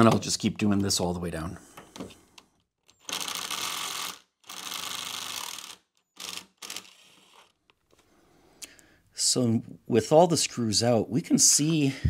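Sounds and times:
cordless screwdriver spinning: 2.9 - 7.9.

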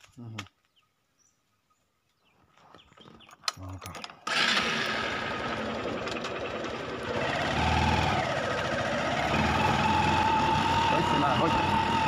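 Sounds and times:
motorcycle engine running: 4.3 - 12.0.

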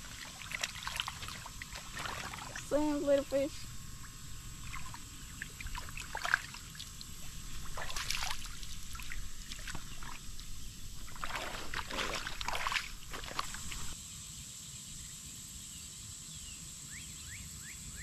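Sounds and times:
water sloshing and splashing: 0.0 - 14.0.

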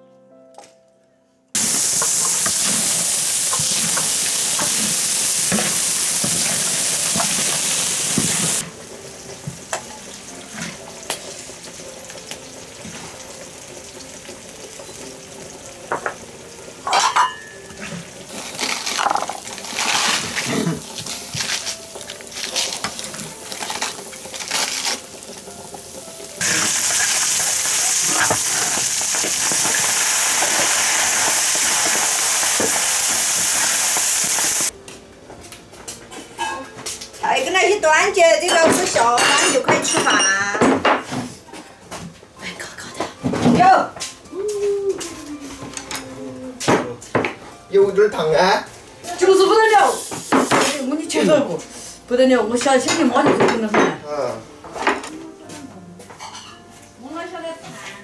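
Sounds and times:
food sizzling in a wok: 1.6 - 34.8, 47.7 - 53.2
ladle clinking against bowls: 16.9 - 17.8
metal ladle scraping wok: 26.4 - 30.5.

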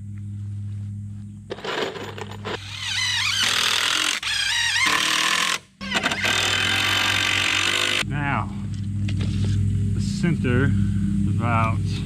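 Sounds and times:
cordless drill driving screws: 2.6 - 8.0.

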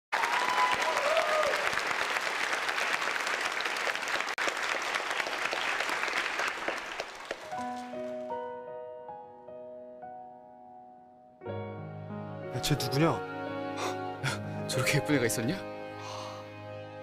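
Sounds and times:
audience applauding: 0.1 - 8.2.

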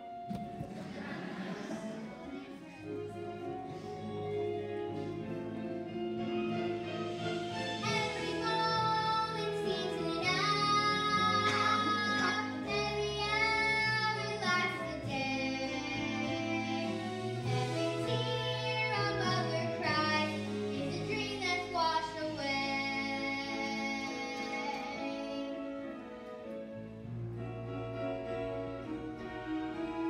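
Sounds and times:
instrumental accompaniment: 0.0 - 30.0
girl singing a show tune: 7.8 - 25.9.

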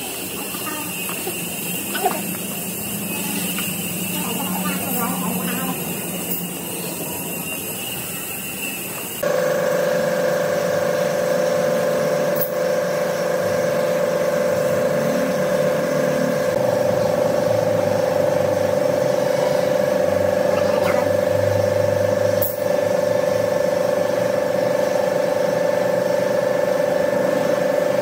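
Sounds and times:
woodworking power tool running: 0.0 - 28.0.

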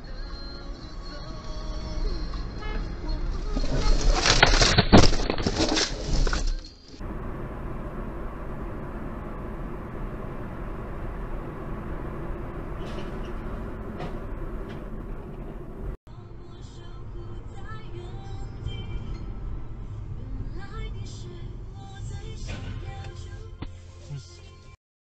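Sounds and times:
car engine and tyre noise: 0.0 - 23.8
metal scraping: 2.7 - 7.0, 12.2 - 15.9
car crash: 3.1 - 15.9.

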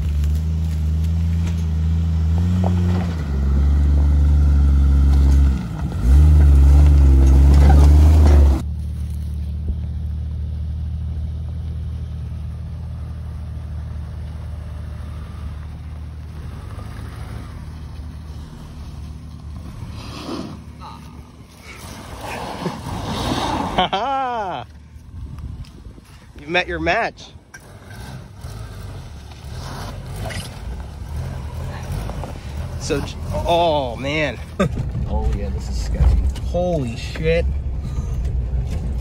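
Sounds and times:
car engine running steadily: 0.0 - 39.0.

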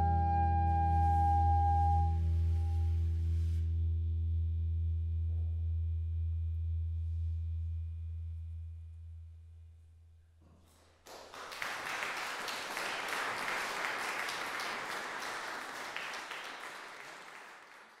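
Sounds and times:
low held note: 0.0 - 3.6
audience applause: 11.0 - 18.0.

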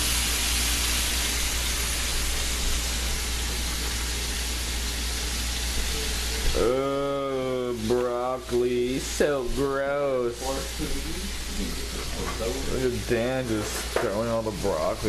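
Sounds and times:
steaks sizzling in a frying pan: 0.0 - 15.0.

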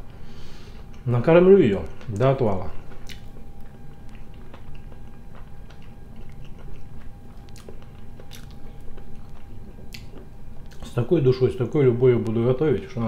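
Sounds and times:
chewing with wet mouth clicks: 1.8 - 11.0.

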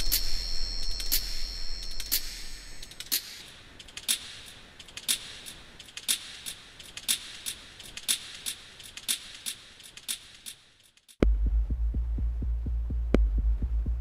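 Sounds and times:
clock-like ticking: 0.0 - 10.6.

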